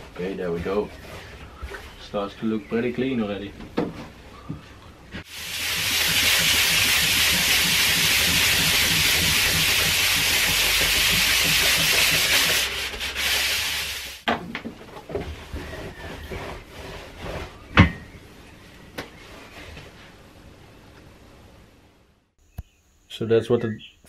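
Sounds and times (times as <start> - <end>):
sandpaper rasping on metal: 5.3 - 14.2, 15.5 - 17.6.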